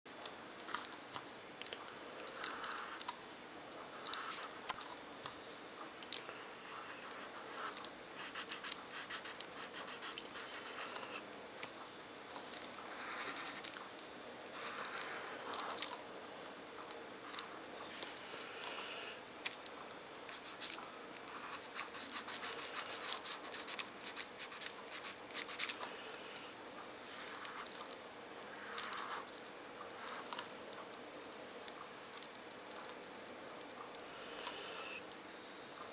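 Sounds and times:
marker scratching on paper: 0:06.8 - 0:11.2, 0:12.9 - 0:13.7, 0:20.3 - 0:25.7.

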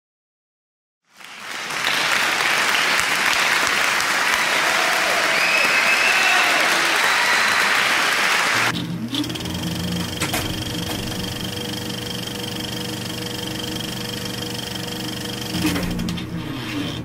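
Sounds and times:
electronic buzzing drone: 0:08.7 - 0:17.0.

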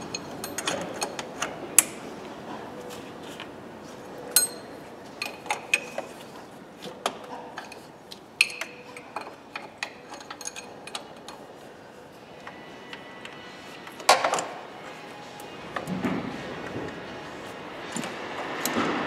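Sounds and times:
spanner and metal fittings clinking: 0:00.0 - 0:02.0, 0:04.3 - 0:06.2, 0:07.6 - 0:11.5.

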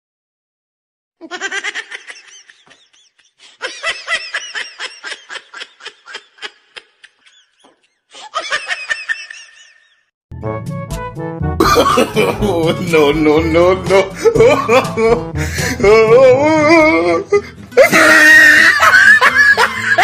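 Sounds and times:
person laughing: 0:01.2 - 0:10.1, 0:11.6 - 0:20.0.

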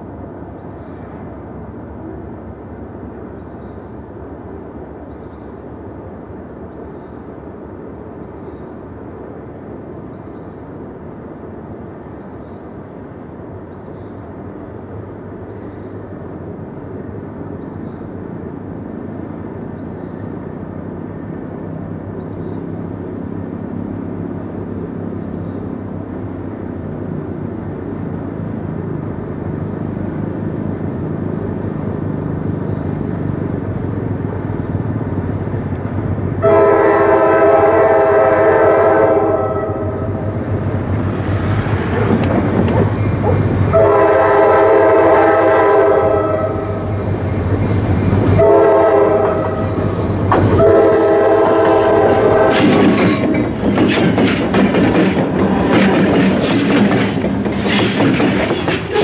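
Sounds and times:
freight wheels rumbling on rail: 0:00.0 - 0:59.0
engine drone: 0:39.2 - 0:44.4
wheels clacking on rail joints: 0:40.0 - 0:43.9, 0:49.1 - 0:59.0.

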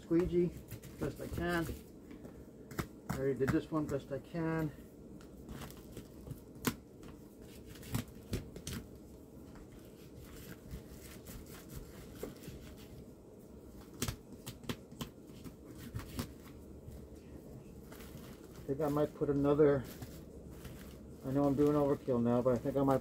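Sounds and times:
foil tape crinkling: 0:17.8 - 0:23.0.

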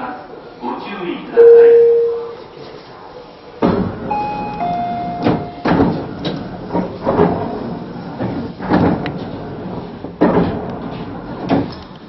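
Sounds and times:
held electronic tone: 0:01.4 - 0:02.4, 0:04.1 - 0:05.7
train running noise: 0:01.4 - 0:12.0
knocks and clunks: 0:03.6 - 0:11.9.

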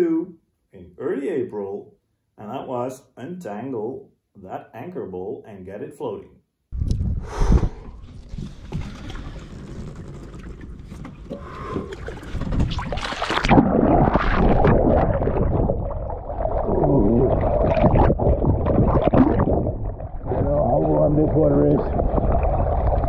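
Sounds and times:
underwater bubbling and gurgling: 0:07.0 - 0:23.0
splash into water: 0:11.7 - 0:20.6.

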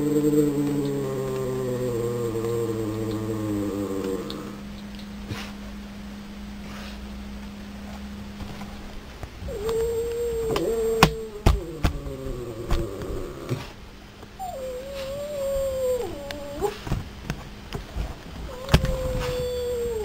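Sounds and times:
dog howling: 0:00.0 - 0:04.7, 0:09.4 - 0:13.8, 0:14.4 - 0:16.9, 0:18.4 - 0:20.0.

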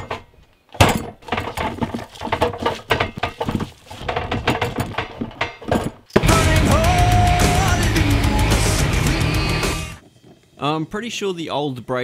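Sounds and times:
music: 0:06.2 - 0:10.0.

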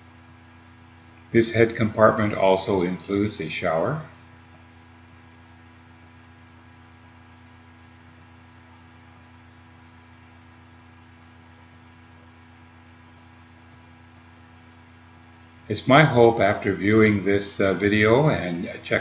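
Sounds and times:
faint electrical hum: 0:00.0 - 0:19.0.

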